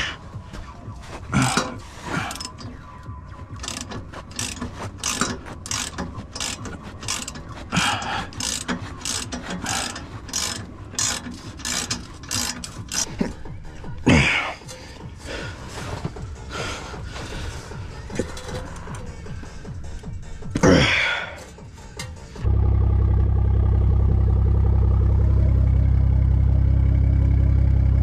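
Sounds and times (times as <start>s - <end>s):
ratchet wrench clicking: 2.3s - 2.7s, 3.6s - 13.2s.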